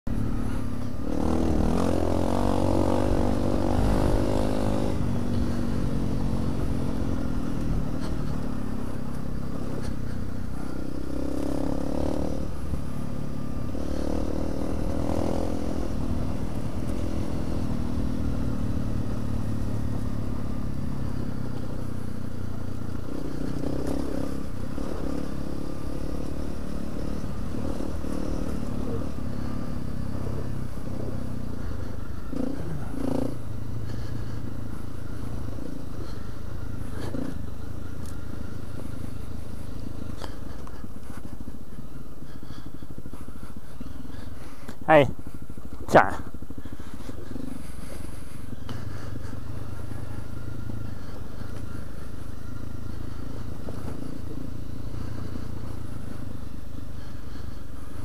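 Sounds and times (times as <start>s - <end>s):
low rumble of wind and road: 0.0s - 58.0s
motorcycle engine revving: 0.0s - 58.0s.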